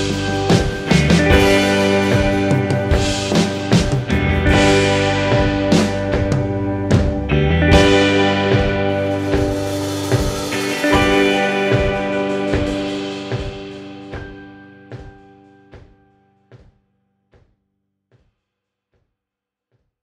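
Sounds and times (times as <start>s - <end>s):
steady drum beat: 0.0s - 15.2s.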